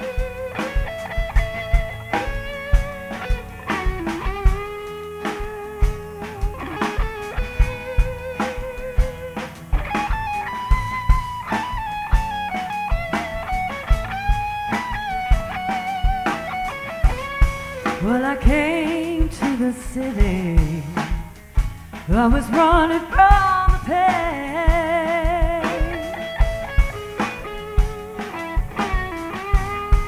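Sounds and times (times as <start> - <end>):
electric guitar lead: 0.0 - 30.0
kick drum beat: 5.4 - 16.2.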